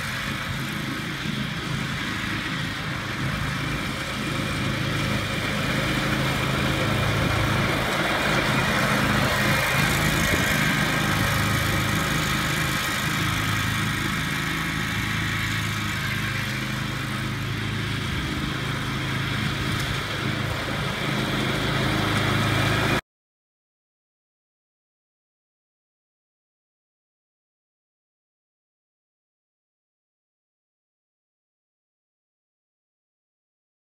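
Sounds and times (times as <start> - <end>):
riding mower engine running: 0.0 - 23.0.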